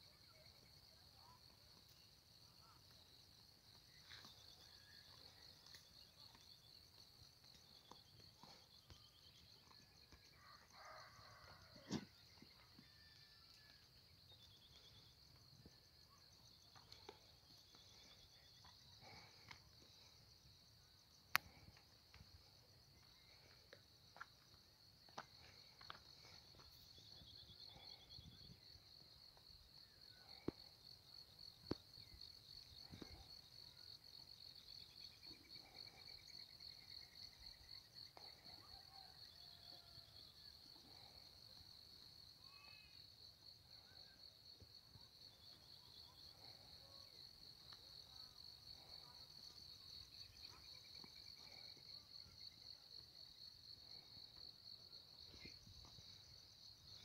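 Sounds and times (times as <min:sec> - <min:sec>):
insects droning: 0:00.0 - 0:57.0.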